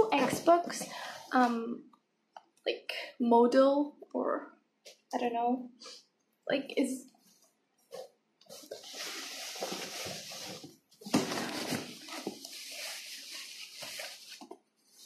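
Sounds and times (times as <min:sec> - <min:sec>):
cardboard rustling: 0:07.9 - 0:15.0
plastic wrapping crinkling: 0:07.9 - 0:15.0.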